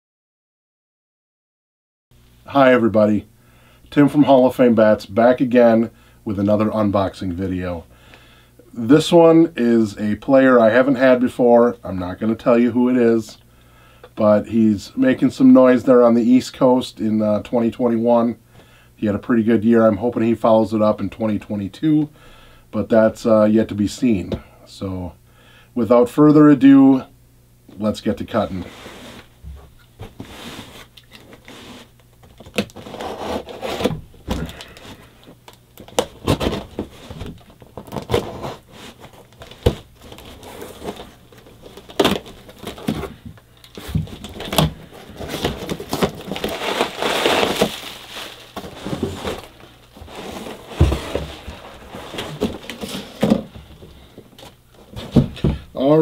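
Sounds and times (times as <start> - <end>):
tape and cardboard tearing: 30.2 - 34.9, 35.8 - 43.1, 43.7 - 53.4.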